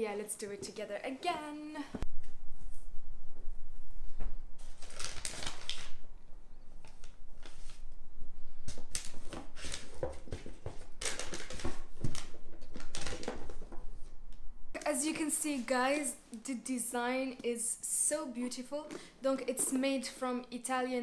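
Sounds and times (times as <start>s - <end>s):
tissue paper rustling and crinkling: 4.6s - 6.0s.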